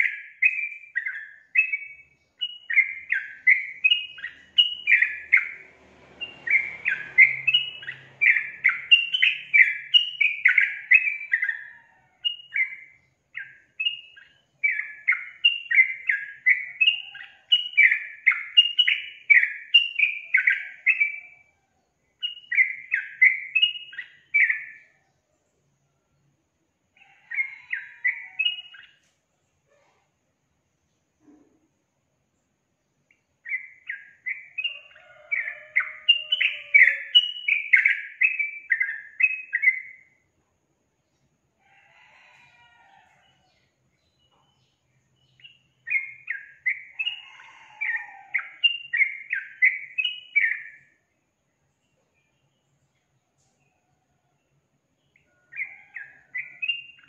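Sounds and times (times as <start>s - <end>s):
bird singing chattering notes: 0.0s - 11.7s, 33.5s - 40.0s.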